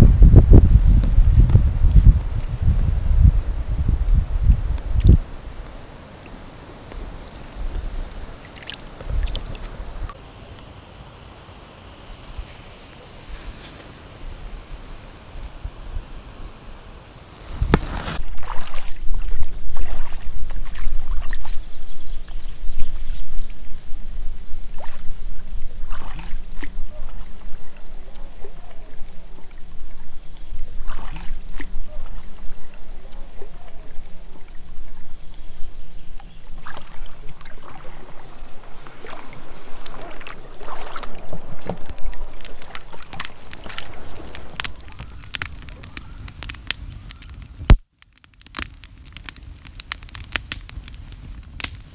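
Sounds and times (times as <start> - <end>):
campfire crackling: 4.3 - 51.9
water splashing against raft: 8.4 - 10.2, 17.6 - 21.6, 24.7 - 30.0, 30.6 - 34.6, 36.5 - 46.6.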